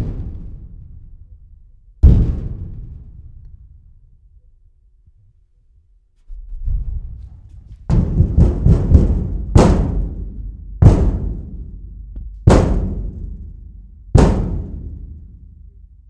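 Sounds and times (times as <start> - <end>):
thin sheet metal banging: 6.3 - 11.8, 12.4 - 15.4.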